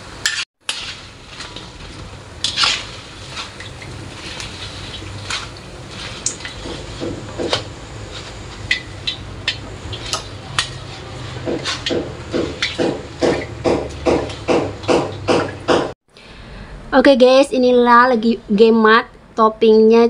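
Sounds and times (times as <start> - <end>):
oil sizzling in a wok: 0.0 - 13.6.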